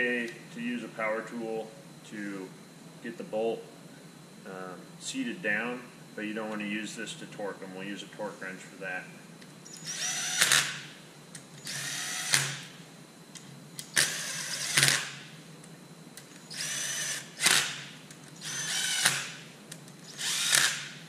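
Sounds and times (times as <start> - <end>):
cordless drill driving screws: 9.7 - 10.9, 11.6 - 12.7, 13.9 - 15.2, 16.4 - 19.4, 20.0 - 21.0.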